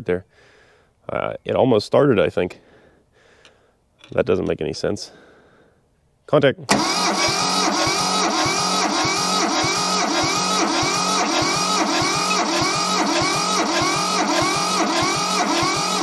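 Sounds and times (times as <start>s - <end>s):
diesel engine cranking: 6.7s - 16.0s.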